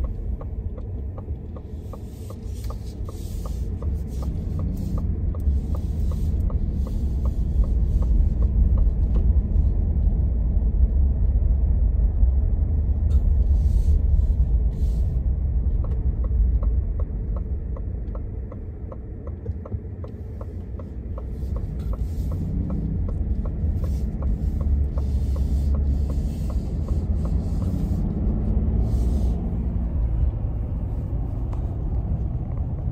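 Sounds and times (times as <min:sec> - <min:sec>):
light regular ticking: 0:00.0 - 0:10.5, 0:13.1 - 0:32.9
car cabin road and engine rumble: 0:00.0 - 0:32.9.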